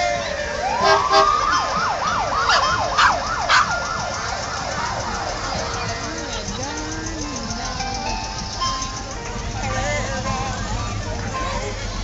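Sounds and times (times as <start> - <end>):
electronic siren wailing and yelping: 0.7 - 4.1.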